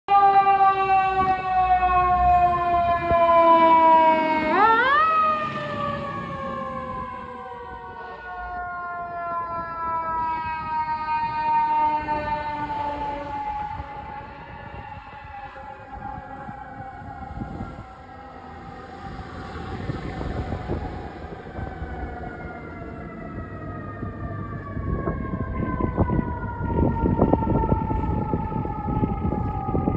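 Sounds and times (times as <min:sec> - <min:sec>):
mechanical siren wailing: 0:00.1 - 0:29.9
heavy vehicle rumble and knocks: 0:24.8 - 0:29.9.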